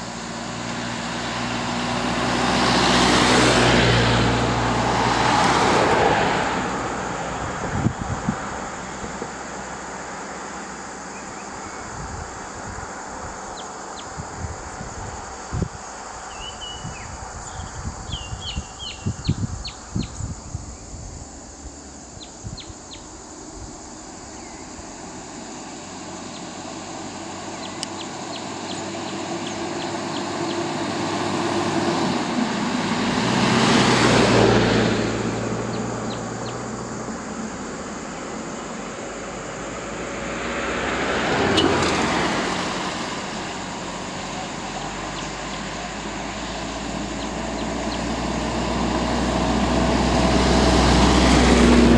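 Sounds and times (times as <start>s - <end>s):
van engine and tyre noise: 0.0s - 51.9s
wind bumping microphone: 7.2s - 9.2s, 11.8s - 23.8s
birds chirping: 15.8s - 20.9s, 24.0s - 31.4s, 35.6s - 38.9s, 43.3s - 48.5s.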